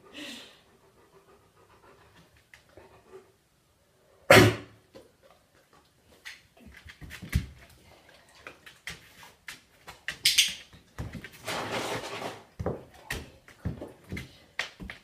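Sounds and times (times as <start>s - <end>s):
dog claws clicking on tile: 8.4s - 11.3s.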